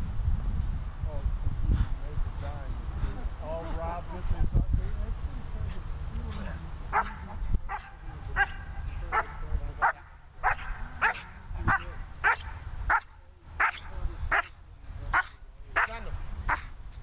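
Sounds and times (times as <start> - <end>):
dog barking sharply: 6.9 - 14.5.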